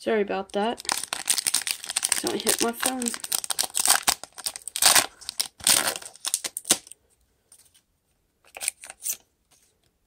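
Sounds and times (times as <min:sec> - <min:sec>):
foil pack tearing and crinkling: 0:00.8 - 0:07.0
cards rustling: 0:00.8 - 0:07.8.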